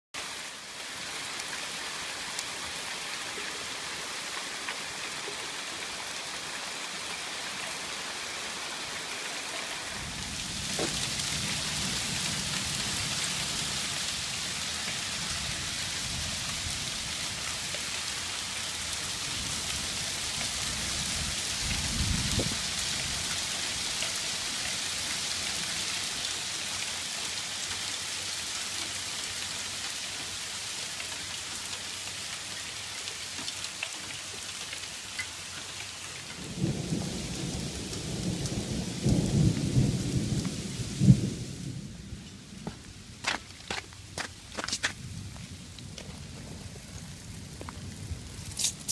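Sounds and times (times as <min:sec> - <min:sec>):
hail striking gravel: 0:10.3 - 0:13.9, 0:42.6 - 0:48.9.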